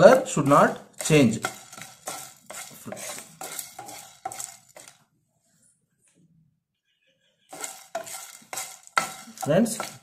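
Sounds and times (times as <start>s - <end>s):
wooden spatula scraping spices in pan: 0.0s - 5.1s, 7.4s - 10.0s.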